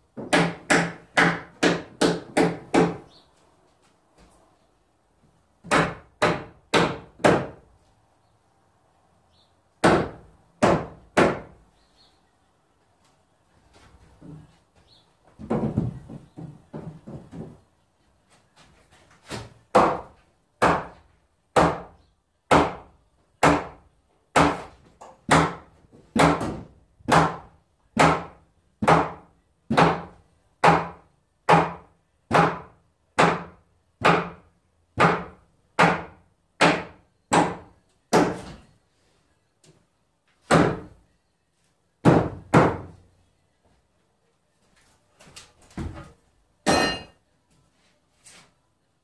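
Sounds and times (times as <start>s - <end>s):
hammer striking nails: 0.2s - 3.1s, 5.6s - 7.6s, 9.8s - 11.6s, 19.3s - 21.0s, 21.6s - 38.6s, 45.9s - 47.2s.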